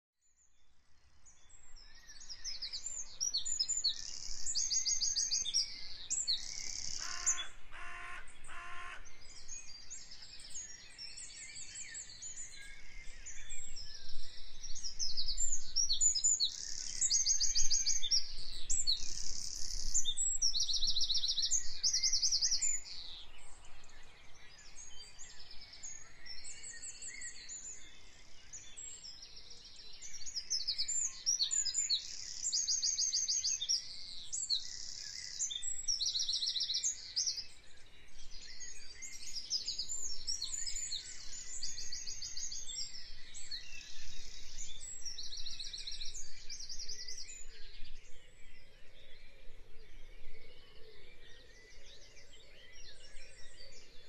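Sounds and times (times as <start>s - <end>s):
songbirds chorus chirping: 0.2s - 54.0s
lower bird calls: 2.3s - 10.9s.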